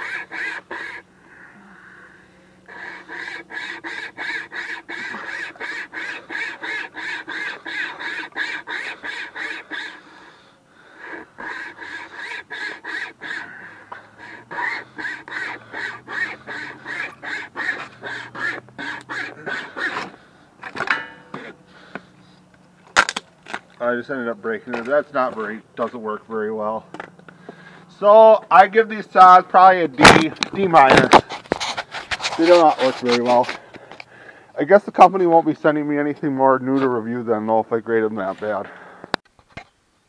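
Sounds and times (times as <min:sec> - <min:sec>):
wire saw rasping through wood: 0:00.0 - 0:01.1, 0:02.6 - 0:22.0, 0:24.8 - 0:26.3, 0:28.6 - 0:33.6.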